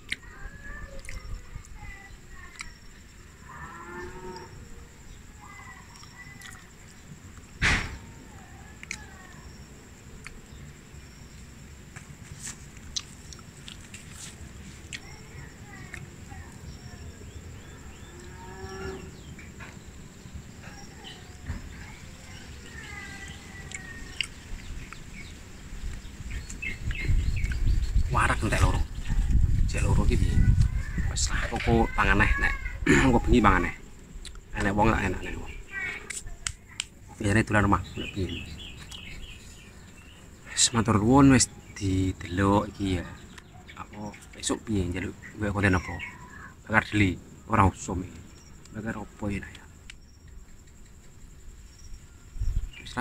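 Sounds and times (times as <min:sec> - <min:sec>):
cow mooing: 0:03.5 - 0:04.6
bird chirps: 0:12.5 - 0:53.0.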